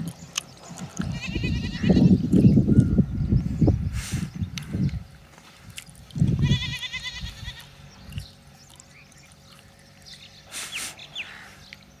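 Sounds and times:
high quavering bleat: 0:01.0 - 0:02.2, 0:06.3 - 0:07.9.

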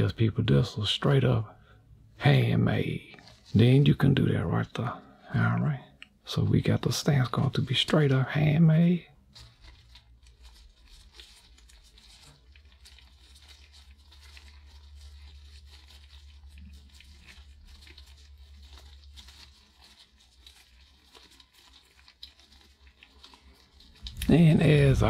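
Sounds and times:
low steady hum: 0:00.0 - 0:25.0
sticky crackling of kneaded putty: 0:02.2 - 0:25.0.

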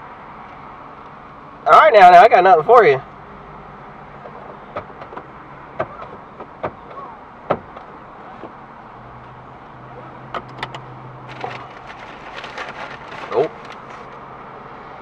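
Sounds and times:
car cabin hum: 0:04.2 - 0:08.6, 0:10.0 - 0:14.2.

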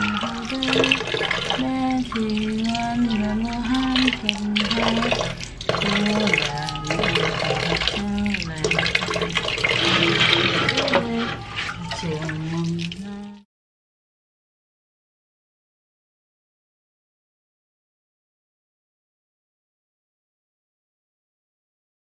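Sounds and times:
slow background music: 0:00.0 - 0:13.4
water splashing in steel basin: 0:00.0 - 0:13.4.

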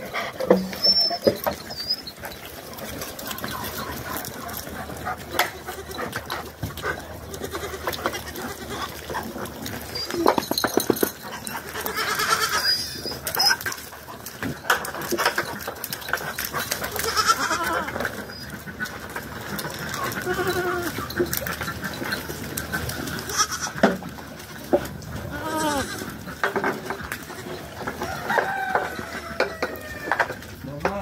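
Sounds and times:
goats bleating: 0:05.4 - 0:06.2, 0:07.3 - 0:09.1, 0:11.8 - 0:13.6, 0:16.9 - 0:18.1, 0:20.0 - 0:21.2, 0:23.2 - 0:23.9, 0:25.3 - 0:26.3.

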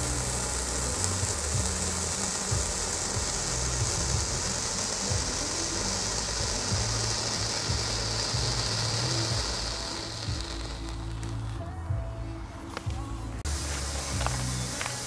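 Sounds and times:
ground firework hissing: 0:00.0 - 0:15.0.

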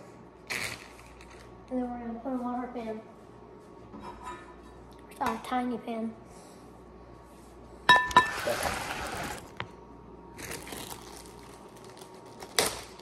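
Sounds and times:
plastic bag crinkling: 0:10.4 - 0:13.0.

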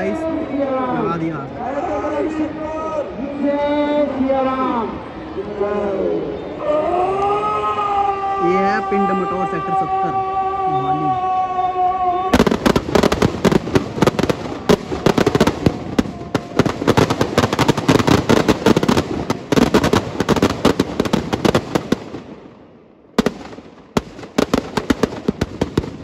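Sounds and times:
firecrackers crackling: 0:12.3 - 0:26.0.

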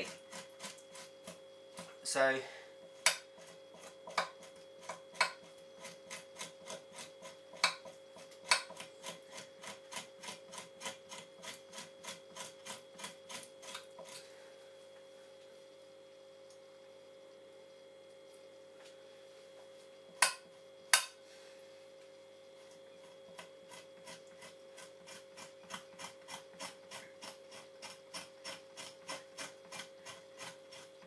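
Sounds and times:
knife scraping hide: 0:00.0 - 0:01.9, 0:03.0 - 0:14.3, 0:23.0 - 0:31.0.

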